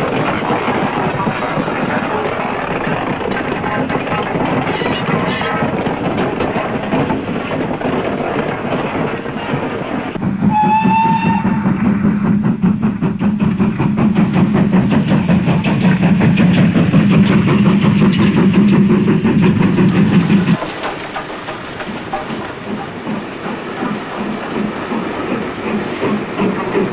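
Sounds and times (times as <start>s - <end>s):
steam locomotive chuffing: 0.0s - 26.9s
steam whistle blast: 10.5s - 11.6s.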